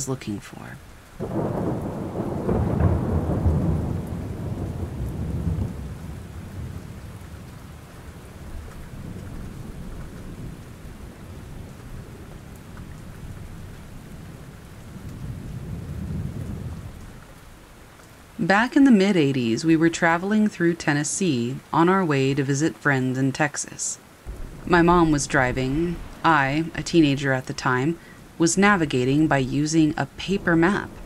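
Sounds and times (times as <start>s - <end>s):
steady rain: 0.0s - 31.0s
thunder rumble: 1.2s - 17.2s, 24.2s - 31.0s.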